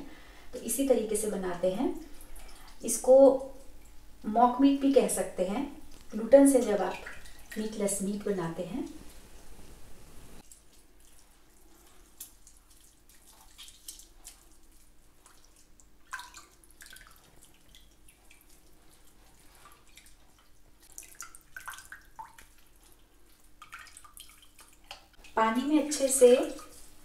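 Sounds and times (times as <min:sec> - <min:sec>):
water dripping into a bucket: 0:02.0 - 0:04.3, 0:05.8 - 0:08.2, 0:10.4 - 0:26.8
wet dough squeezed by hand: 0:10.4 - 0:25.3.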